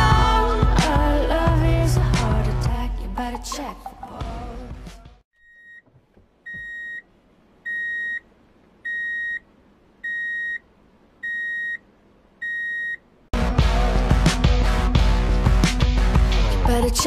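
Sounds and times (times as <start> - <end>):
background song: 0.0 - 5.2, 13.4 - 17.0.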